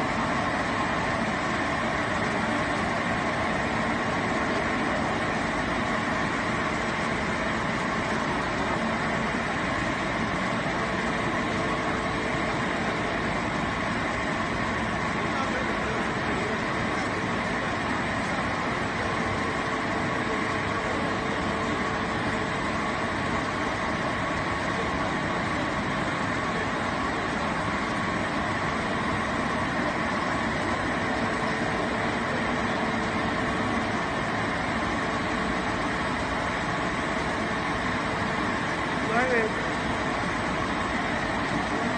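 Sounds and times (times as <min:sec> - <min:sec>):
machine hum and hiss: 0:00.0 - 0:41.9.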